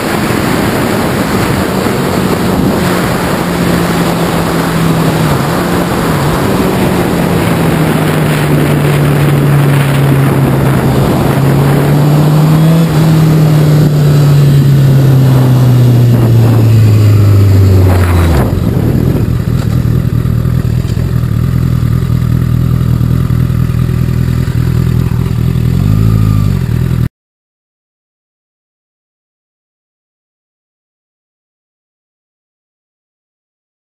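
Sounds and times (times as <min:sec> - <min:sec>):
wind rush over microphone: 0:00.0 - 0:20.7
motorcycle engine running: 0:00.0 - 0:27.1.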